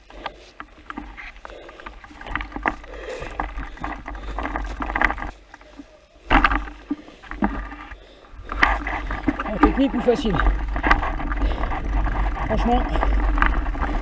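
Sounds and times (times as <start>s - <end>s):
bike rattling and knocking: 0.0s - 14.0s
bike tyres rolling on mud: 0.0s - 14.0s
loud bike clatter: 1.8s - 5.4s, 8.4s - 14.0s.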